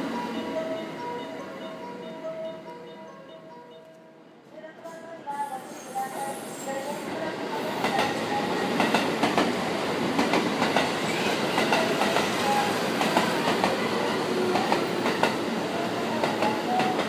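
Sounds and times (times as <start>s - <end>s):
train rumbling past: 5.1s - 17.0s.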